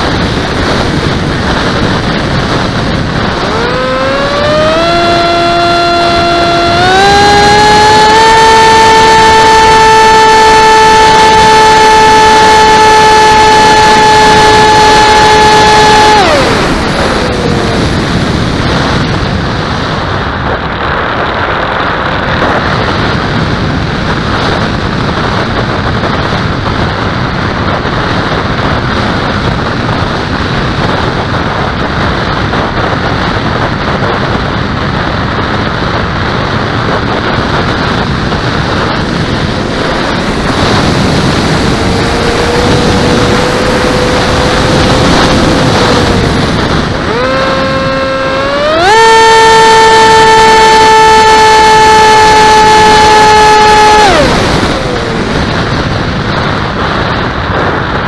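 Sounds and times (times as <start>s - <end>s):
wind rush over microphone: 0.0s - 58.0s
steady tone: 1.6s - 19.3s, 38.7s - 56.6s.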